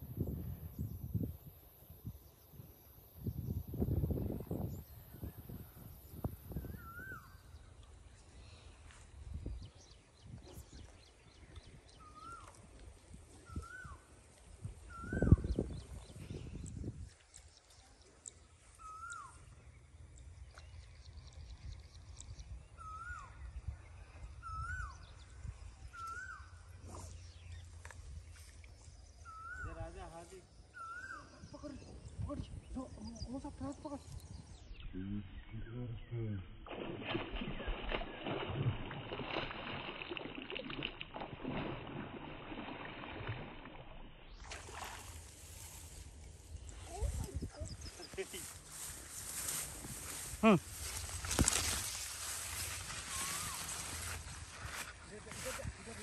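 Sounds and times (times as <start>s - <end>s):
bird whistling call: 6.7s - 7.4s, 14.9s - 15.5s, 18.8s - 19.4s, 22.8s - 23.4s, 25.9s - 26.5s, 29.2s - 29.8s, 30.7s - 31.5s
water trickling and splashing: 36.7s - 56.0s.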